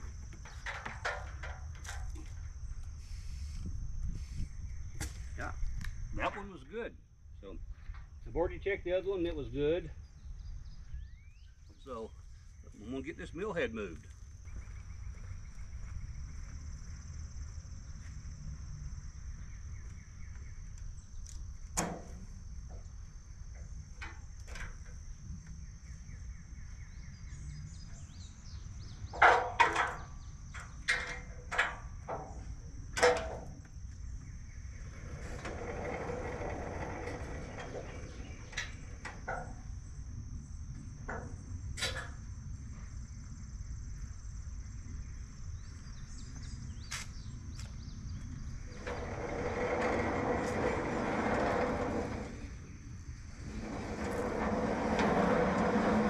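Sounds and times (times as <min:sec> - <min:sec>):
high insect drone: 0:00.0 - 0:56.0
metal clunks and knocks of sawmill: 0:00.4 - 0:02.5, 0:21.7 - 0:22.9, 0:29.0 - 0:33.7, 0:35.1 - 0:39.8, 0:40.8 - 0:42.3, 0:53.4 - 0:56.0
rolling rumble of carriage: 0:10.1 - 0:42.6, 0:43.4 - 0:56.0.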